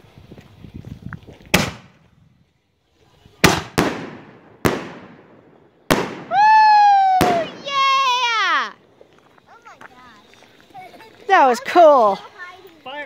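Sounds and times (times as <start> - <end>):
fireworks shells bursting: 3.3 - 11.9
person whooping: 6.3 - 8.8.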